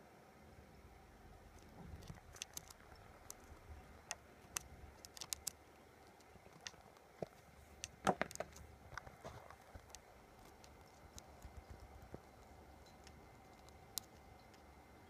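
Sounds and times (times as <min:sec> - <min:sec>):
beetle jaws clicking: 0:01.6 - 0:14.7.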